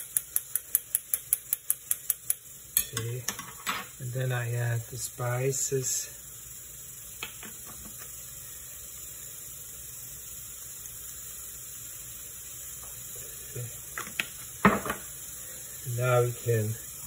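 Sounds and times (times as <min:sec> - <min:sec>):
pressure cooker hissing steam: 0:00.0 - 0:17.0
light knocks on counter: 0:14.0 - 0:15.0.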